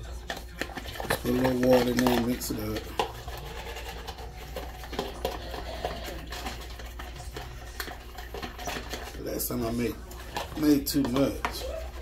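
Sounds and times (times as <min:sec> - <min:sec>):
spoon tapping plastic container: 0:00.0 - 0:12.0.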